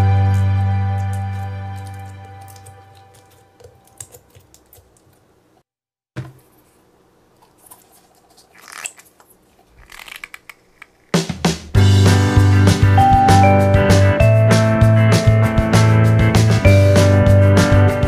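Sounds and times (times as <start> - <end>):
music: 0.0 - 3.2, 11.3 - 18.0.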